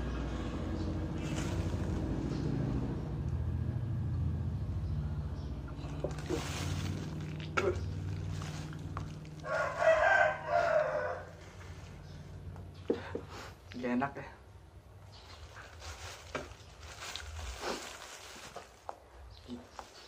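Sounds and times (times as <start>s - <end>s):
low motor-like hum: 0.0s - 9.8s
plastic bag rustling: 1.0s - 2.2s, 5.8s - 12.3s, 15.1s - 20.0s
rooster crowing: 9.3s - 11.6s.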